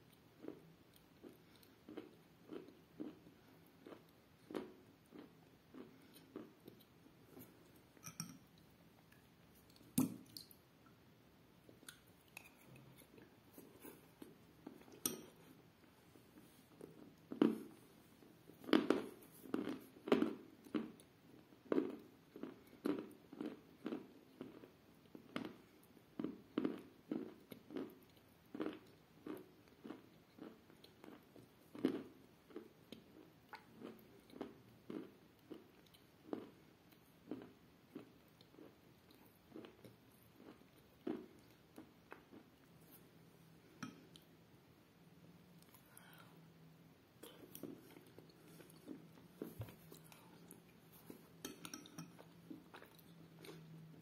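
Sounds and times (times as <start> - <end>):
person chewing: 0.1 - 10.6, 11.7 - 15.6, 16.4 - 21.1, 26.2 - 43.0, 47.2 - 54.0.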